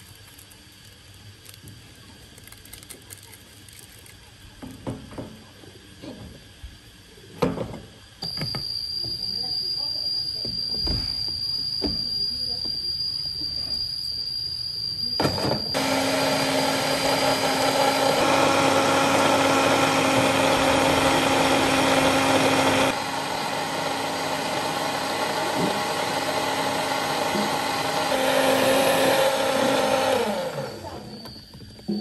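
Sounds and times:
electric blender motor running: 15.7s - 31.4s.

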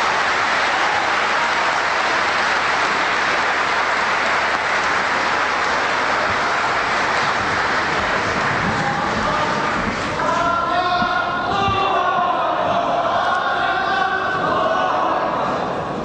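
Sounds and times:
large audience applauding: 0.0s - 10.4s.

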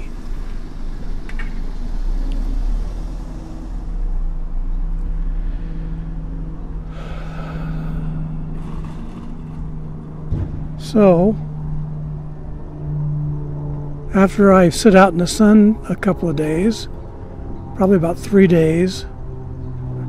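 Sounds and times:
car passing by: 0.0s - 15.1s
low engine hum: 0.0s - 20.0s.

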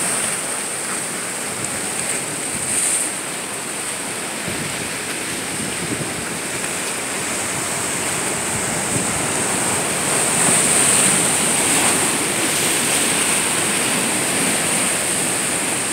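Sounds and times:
surf rushing between rocks: 0.0s - 15.9s.

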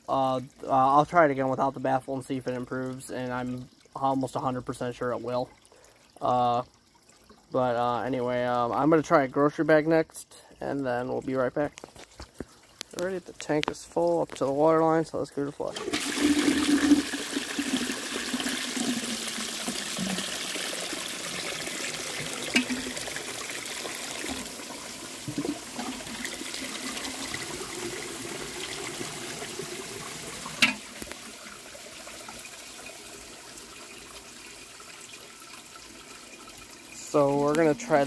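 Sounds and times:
toilet flushing: 15.6s - 38.0s.

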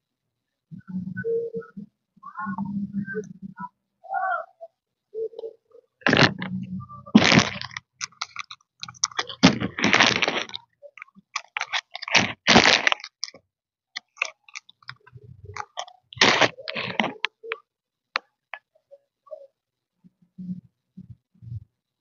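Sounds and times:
person chewing noisily: 7.2s - 13.4s, 14.0s - 17.3s.

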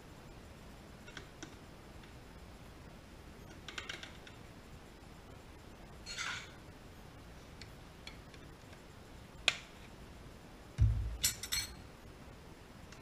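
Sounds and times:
low thump: 10.8s - 11.3s
light clinks: 11.2s - 11.8s.

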